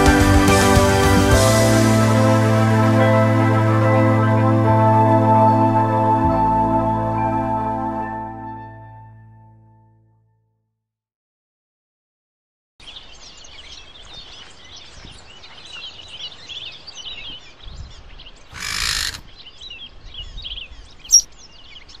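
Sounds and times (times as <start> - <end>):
small birds chirping: 12.8 - 22.0.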